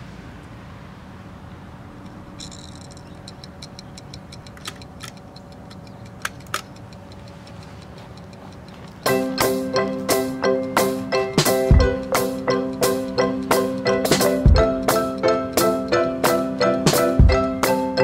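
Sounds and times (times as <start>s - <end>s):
timer dial being turned: 2.5s - 9.1s
timer ticking: 3.1s - 18.0s.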